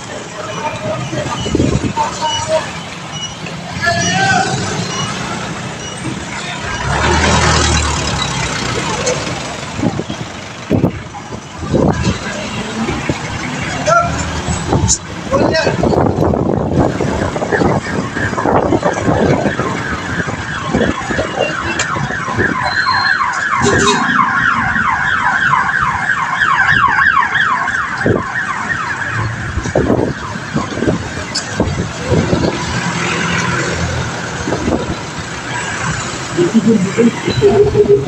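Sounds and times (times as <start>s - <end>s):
street traffic: 0.0s - 38.0s
wind buffeting microphone: 9.6s - 13.4s, 14.6s - 22.8s, 29.2s - 33.0s, 33.6s - 36.0s.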